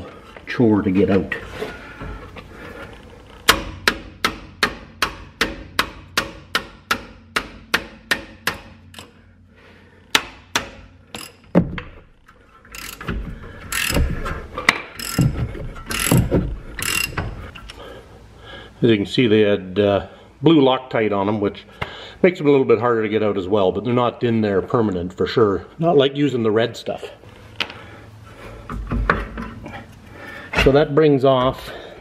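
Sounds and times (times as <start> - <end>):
metal knocks and scrapes: 10.6 - 17.5
ratchet wrench clicking: 11.1 - 11.4, 12.7 - 13.1, 13.7 - 14.1, 14.9 - 15.3, 15.9 - 17.3.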